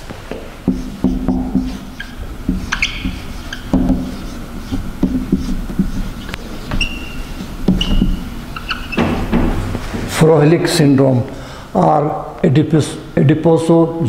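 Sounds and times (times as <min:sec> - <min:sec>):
marker scratching on whiteboard: 0:00.4 - 0:09.7
marker squeaks: 0:00.7 - 0:09.7.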